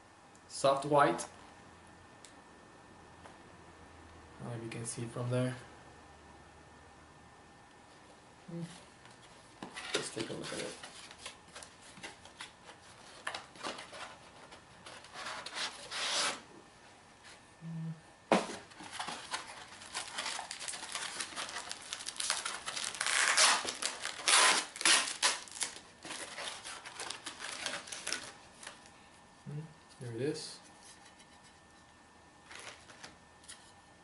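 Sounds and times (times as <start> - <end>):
foam packing rustling: 9.8 - 16.5, 18.3 - 28.9, 32.4 - 33.2
cardboard box tearing: 18.4 - 28.3.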